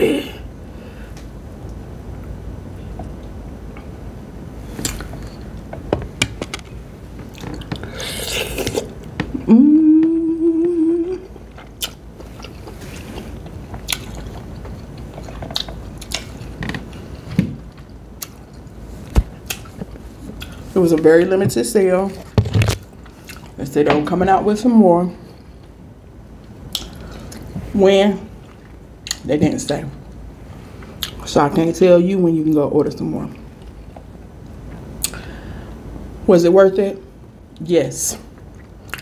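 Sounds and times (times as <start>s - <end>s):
person humming mmm: 7.9s - 11.4s
wet chewing and lip smacks: 11.5s - 16.5s, 26.7s - 27.5s, 38.4s - 39.0s.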